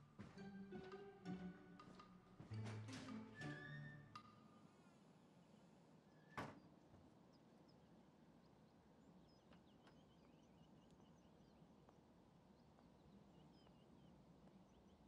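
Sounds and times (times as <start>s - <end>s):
faint birds chirping: 3.7s - 15.0s.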